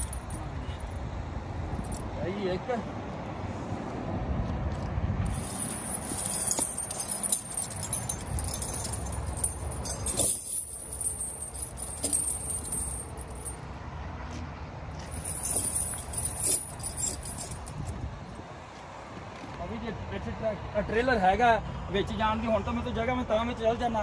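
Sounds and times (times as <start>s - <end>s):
steel chains clinking: 0.0s - 0.9s, 1.8s - 2.0s, 5.3s - 13.6s, 15.0s - 18.0s.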